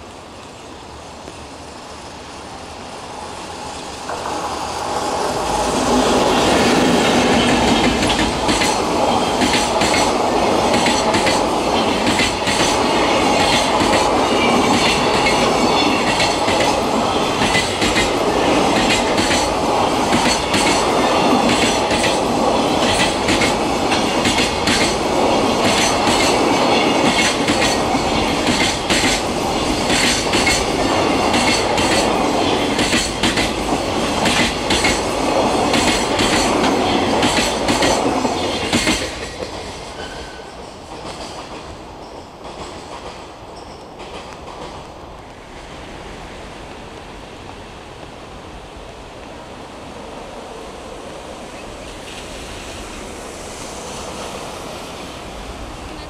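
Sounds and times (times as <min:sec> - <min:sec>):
train rumble: 0:00.0 - 0:56.0
train wheels clacking on rail joints: 0:04.0 - 0:45.4.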